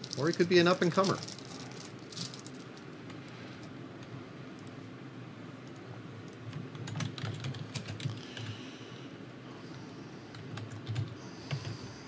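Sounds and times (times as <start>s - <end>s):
keyboard typing: 5.6s - 8.5s, 10.3s - 11.8s.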